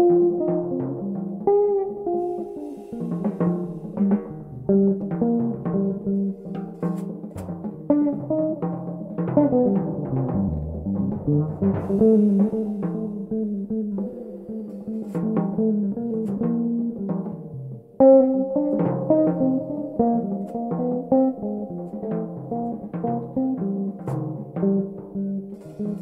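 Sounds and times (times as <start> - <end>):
drum kit: 0.0 - 26.0
electric bass plucked notes: 0.0 - 26.0
cymbal wash: 2.1 - 4.7, 11.7 - 15.1.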